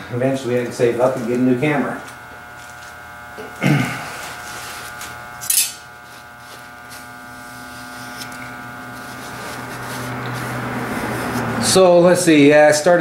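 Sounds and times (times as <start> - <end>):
steady electrical hum: 0.0 - 13.0
paper towel rustling: 6.0 - 11.9.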